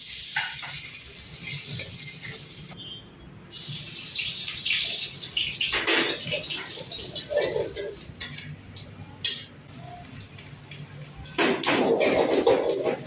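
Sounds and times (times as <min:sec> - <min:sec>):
food sizzling in a wok: 0:00.0 - 0:02.8, 0:03.5 - 0:08.3.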